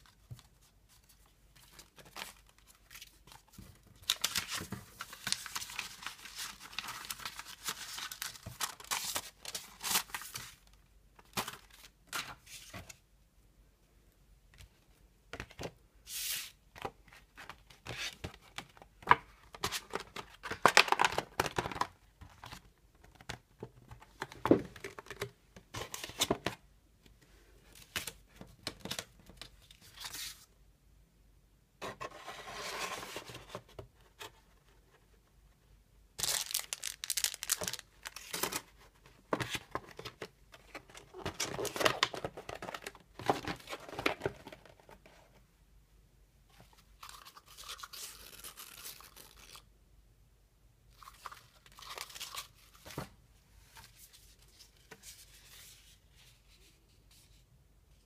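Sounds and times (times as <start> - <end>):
paper rustling and crinkling: 0.0 - 13.0, 36.2 - 45.1.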